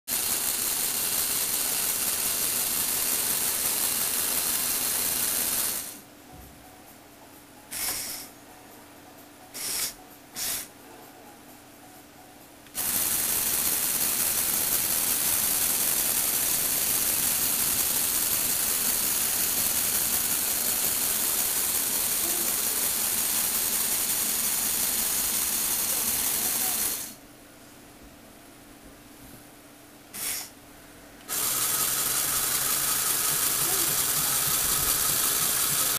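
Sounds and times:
toy motor and gears whirring: 0.1 - 6.0, 7.7 - 8.4, 9.5 - 10.7, 12.7 - 27.2, 30.2 - 30.5, 31.3 - 35.9.

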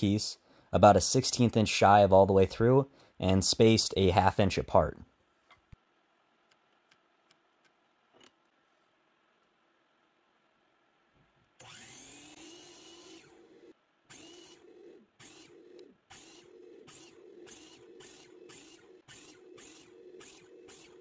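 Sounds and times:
miter saw motor whine: 11.6 - 21.0.

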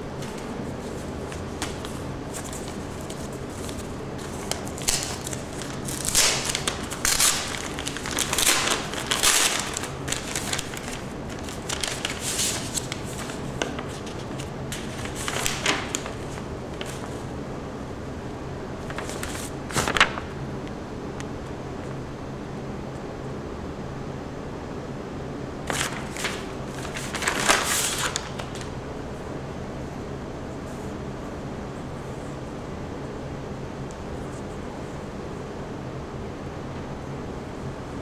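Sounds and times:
low room hum: 0.0 - 38.0
paper crinkling and rustling: 0.1 - 17.3, 18.8 - 20.3, 25.7 - 28.8.

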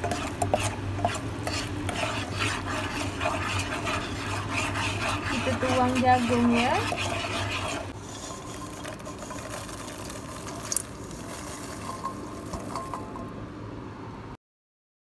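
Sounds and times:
popcorn hissing and rustling in wok: 0.0 - 13.4.

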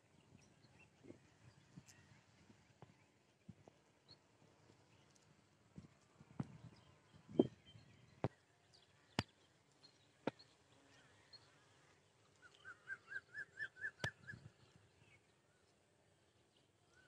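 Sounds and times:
faint bird chirps: 0.0 - 5.3, 6.3 - 17.0
bird calling rising notes: 12.4 - 14.6.

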